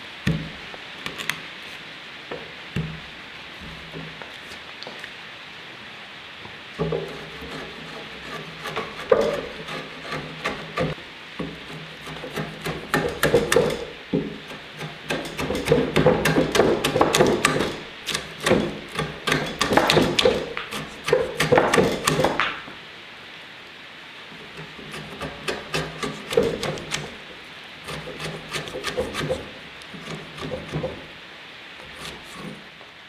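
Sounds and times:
chisel cutting and splitting wood: 0:06.8 - 0:22.6, 0:24.4 - 0:31.1, 0:31.8 - 0:32.7.

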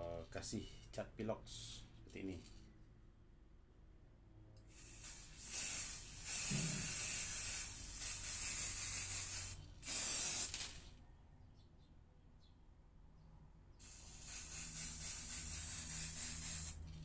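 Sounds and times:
spray can hissing: 0:04.7 - 0:10.9, 0:13.8 - 0:17.0.

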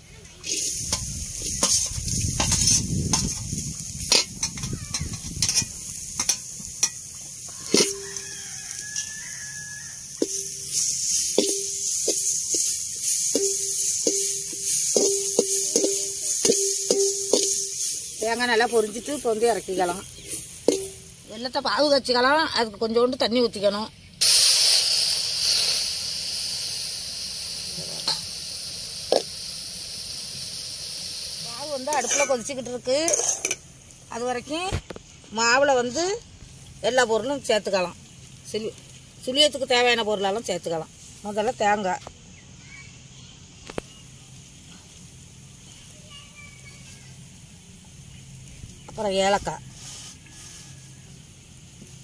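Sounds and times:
coconut sizzling in a pan: 0:00.0 - 0:52.0
metal ladle scraping a pan: 0:00.4 - 0:18.2, 0:31.9 - 0:33.6
scraping off a metal tray: 0:33.0 - 0:33.6.

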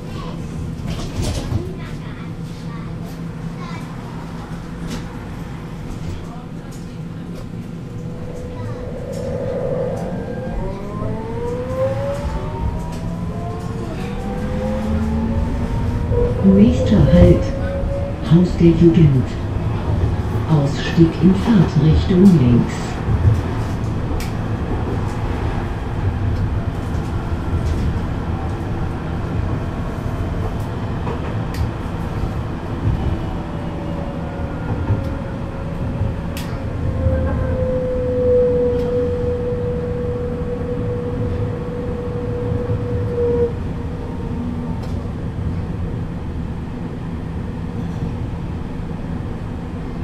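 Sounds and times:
tram wheels rumbling: 0:00.0 - 0:50.0.

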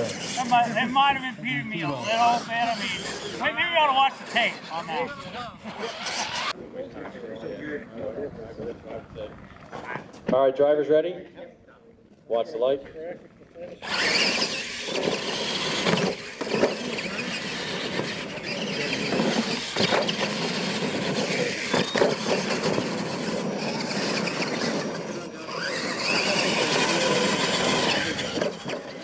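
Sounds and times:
electric motors whining: 0:00.0 - 0:07.8, 0:13.7 - 0:29.0
tyres scrabbling on dirt: 0:13.8 - 0:29.0.

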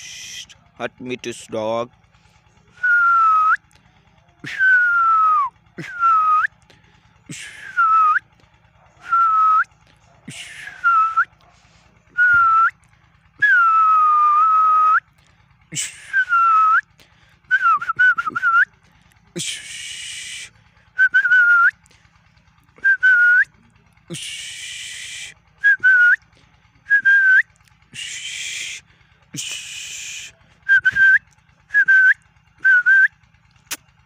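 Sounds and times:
person whistling short notes: 0:12.2 - 0:12.8, 0:17.5 - 0:18.7, 0:19.4 - 0:21.8, 0:22.8 - 0:23.5, 0:24.1 - 0:26.2, 0:26.9 - 0:28.8, 0:29.4 - 0:33.1.

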